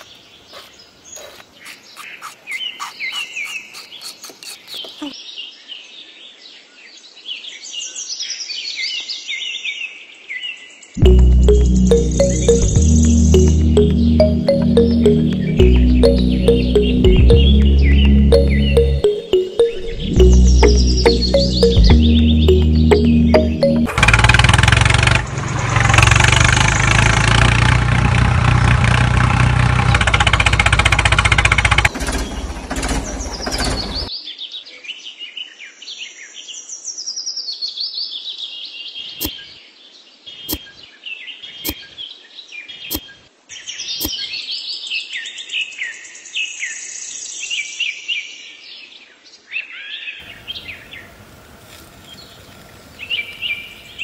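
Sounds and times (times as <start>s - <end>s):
birds chirping and trilling: 0.0s - 23.9s, 31.8s - 54.0s
loud music: 11.0s - 24.0s.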